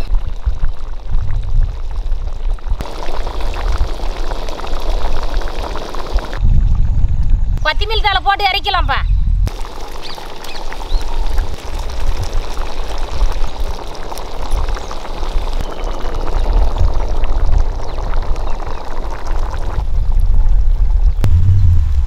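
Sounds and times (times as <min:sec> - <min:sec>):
stew bubbling and popping in a pot: 0:00.0 - 0:07.4, 0:09.5 - 0:22.0
low rumble: 0:20.1 - 0:22.0.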